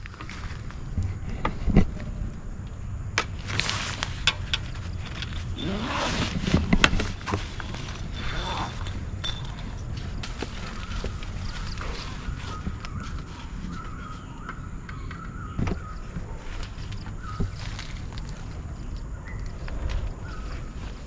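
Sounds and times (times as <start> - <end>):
canvas cover rustling: 3.4 - 14.2
fittings clicking and jingling: 4.2 - 10.2.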